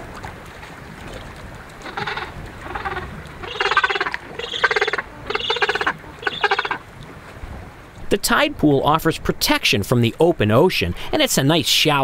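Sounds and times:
penguins squawking: 1.8 - 6.8.

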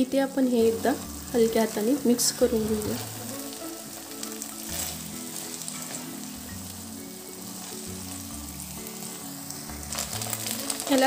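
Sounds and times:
rice sizzling in a pan: 0.0 - 11.0
soft background music: 0.0 - 11.0
spatula scraping a pan: 4.2 - 6.7.

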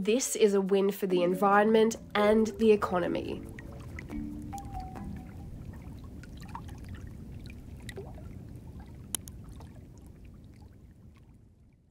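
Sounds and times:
faint water trickling: 0.0 - 11.9.

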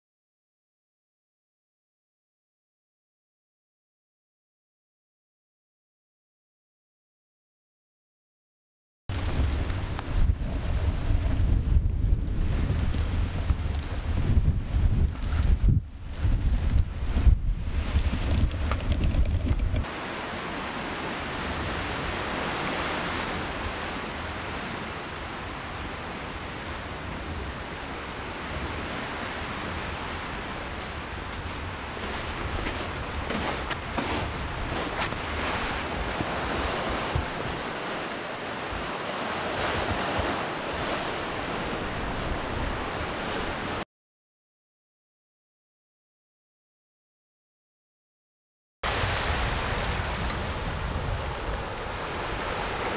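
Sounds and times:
low rumbling with crackles: 9.1 - 19.9
waves washing on shore: 9.1 - 43.8, 48.8 - 52.9.

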